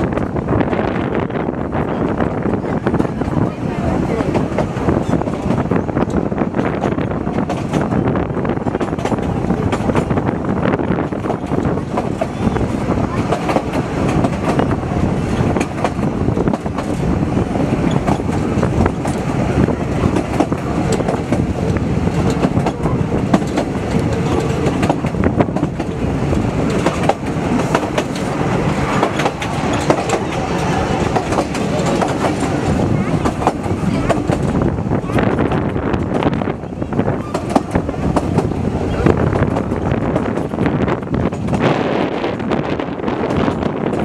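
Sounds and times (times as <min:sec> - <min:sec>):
train wheels rumbling on rails: 0:00.0 - 0:44.0
wheels clicking and clattering: 0:11.0 - 0:41.7.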